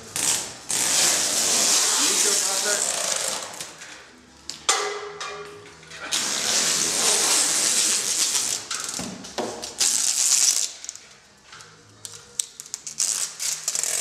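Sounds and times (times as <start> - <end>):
packing tape unrolling screech: 0.0 - 3.8, 6.0 - 11.0, 12.0 - 14.0.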